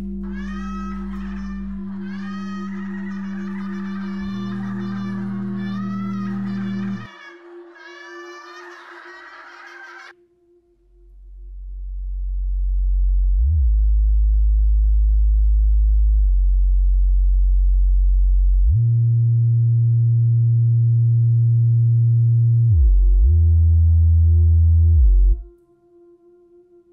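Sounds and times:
low electronic drone tones: 0.0 - 7.1, 10.7 - 25.6.

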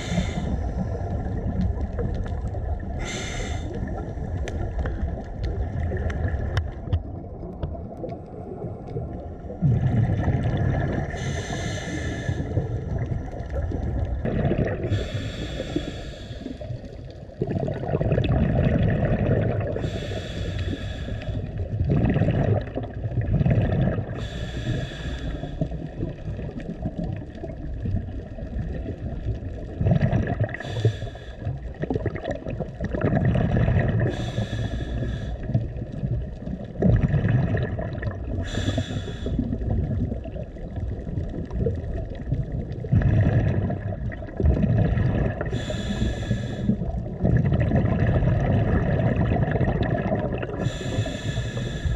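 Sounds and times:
regulator hissing inhale: 0.0 - 1.1, 3.0 - 4.0, 11.1 - 12.6, 14.9 - 16.8, 19.8 - 21.6, 24.1 - 25.7, 30.6 - 31.6, 34.1 - 35.6, 38.4 - 39.6, 45.4 - 46.9, 50.6 - 51.9
gurgle of exhaled bubbles: 0.0 - 51.9.

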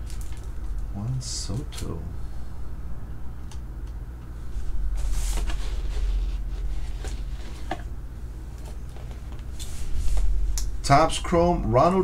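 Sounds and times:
plastic wrapping rustling: 0.0 - 0.9
steady low hum: 0.0 - 12.0.

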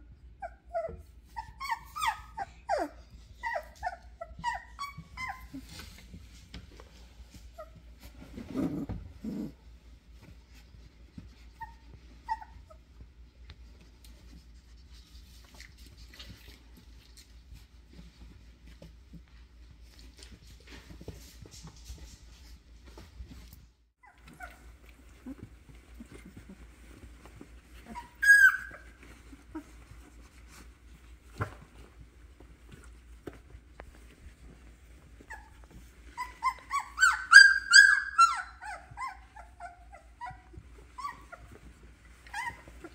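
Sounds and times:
puppy squealing: 0.4 - 5.6, 27.8 - 29.7, 36.1 - 41.6
puppies squeaking and whimpering: 0.4 - 6.0, 11.4 - 12.8, 24.0 - 30.5, 34.9 - 42.9.

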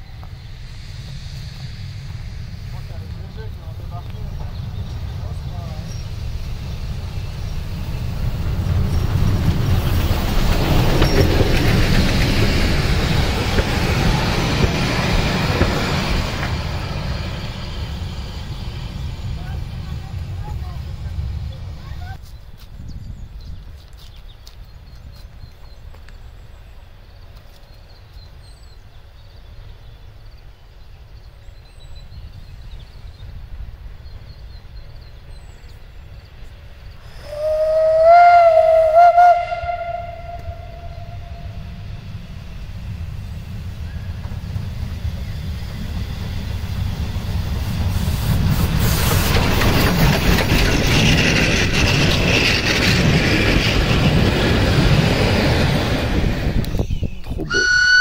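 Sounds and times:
train rumbling on rails: 0.0 - 58.0
steam locomotive whistle: 37.2 - 41.8, 57.5 - 58.0.

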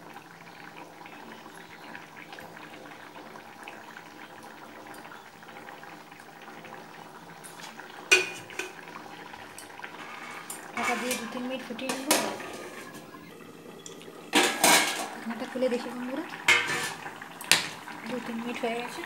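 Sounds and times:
curry bubbling: 0.0 - 19.0
metal clank of utensils: 8.1 - 8.8, 10.0 - 13.1, 13.8 - 15.2, 16.5 - 17.8.

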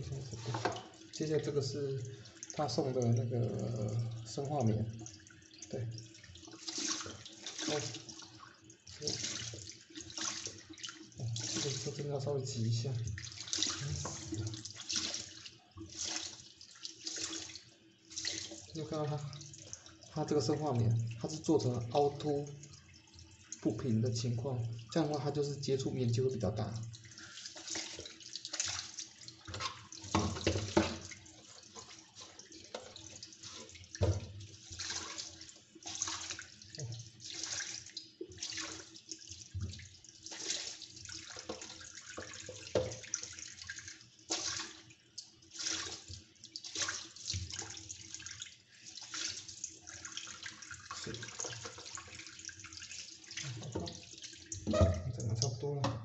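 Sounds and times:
tap water running into sink: 0.0 - 56.0
water splashing: 0.0 - 56.0.

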